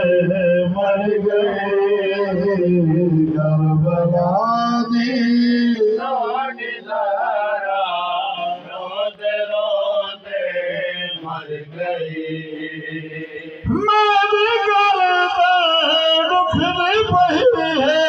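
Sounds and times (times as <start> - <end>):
men chanting a lament: 0.0 - 18.0.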